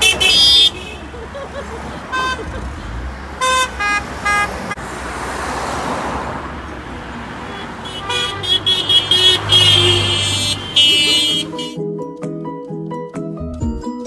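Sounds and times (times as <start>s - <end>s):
car horns honking: 0.0s - 4.8s, 6.9s - 11.8s
cars driving past: 0.0s - 11.8s.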